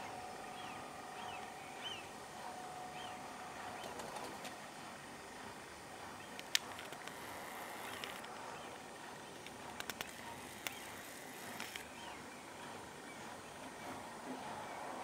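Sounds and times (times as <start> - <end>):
faint background hiss and hum: 0.0 - 15.0.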